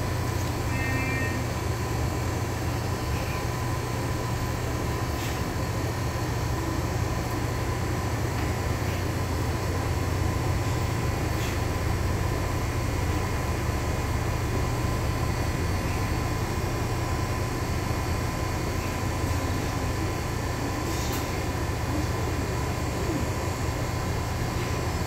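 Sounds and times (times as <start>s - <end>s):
bus engine hum: 0.0s - 25.0s
thin steady whine: 0.0s - 25.0s.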